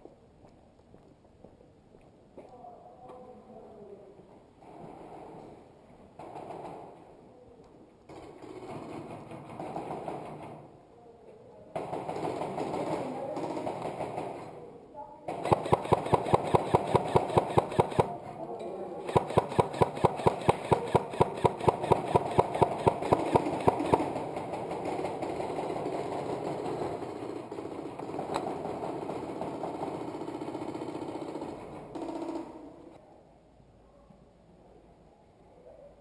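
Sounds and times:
airsoft guns firing full auto: 0:08.1 - 0:10.7, 0:11.8 - 0:14.6, 0:15.3 - 0:18.2, 0:19.0 - 0:33.0.

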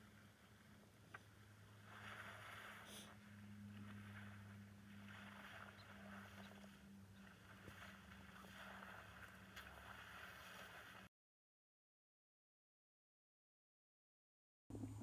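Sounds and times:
low electrical hum: 0:00.0 - 0:11.1, 0:14.7 - 0:15.0
water sloshing and splashing: 0:00.0 - 0:11.1.

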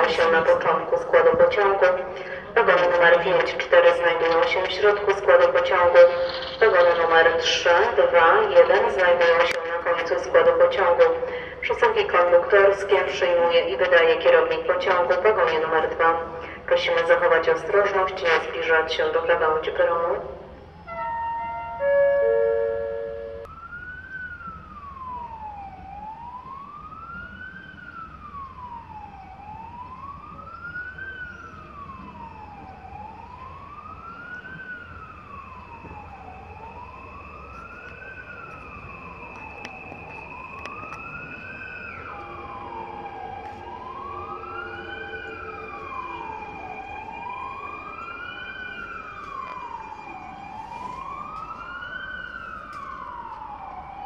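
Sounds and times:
siren wailing: 0:00.0 - 0:54.0.

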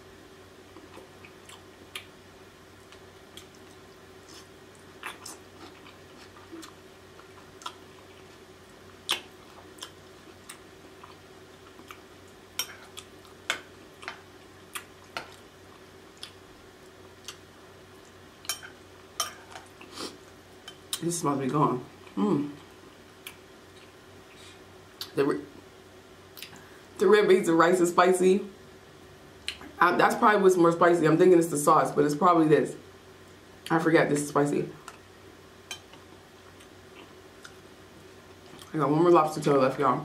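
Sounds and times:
steady low hum: 0:00.0 - 0:40.0
close chewing and mouth sounds: 0:00.7 - 0:02.2, 0:02.8 - 0:21.0, 0:35.7 - 0:37.6, 0:38.3 - 0:38.8.

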